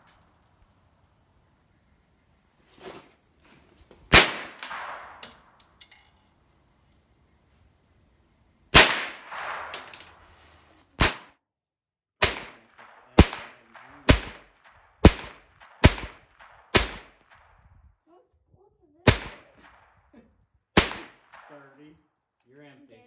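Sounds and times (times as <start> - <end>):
rifle shots: 4.1 - 5.6, 8.7 - 10.4, 11.0 - 11.3, 12.2 - 17.7, 19.0 - 19.8, 20.8 - 21.7.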